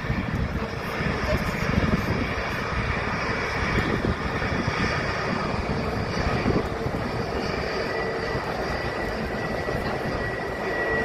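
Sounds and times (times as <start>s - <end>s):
jet engines taxiing: 0.0s - 11.0s.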